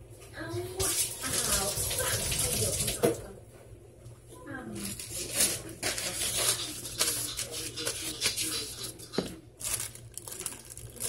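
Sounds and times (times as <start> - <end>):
plastic bag rustling: 4.7 - 11.0.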